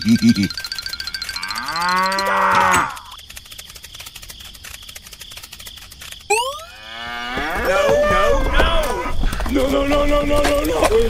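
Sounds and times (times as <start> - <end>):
cow mooing: 1.3 - 3.1, 6.7 - 7.8.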